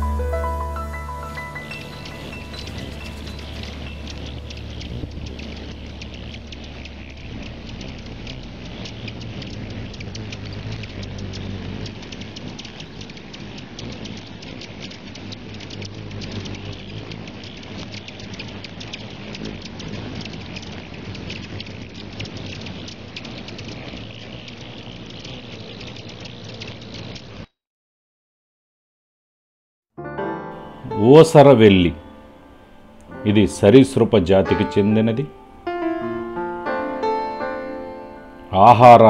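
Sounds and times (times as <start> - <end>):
hummingbird wings humming: 0.0 - 27.5, 30.6 - 39.0
tiny bird clicks and chips: 1.6 - 27.5.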